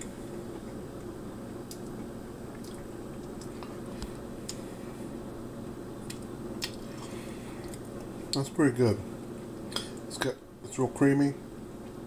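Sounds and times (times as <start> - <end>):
steady low hum: 0.0 - 12.0
mouth clicks and smacks: 1.6 - 2.0.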